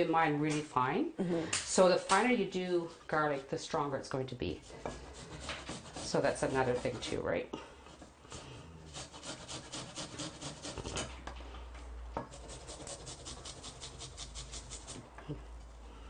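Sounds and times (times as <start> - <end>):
garlic grating on rasp: 4.6 - 7.1, 7.9 - 11.2, 12.3 - 15.0.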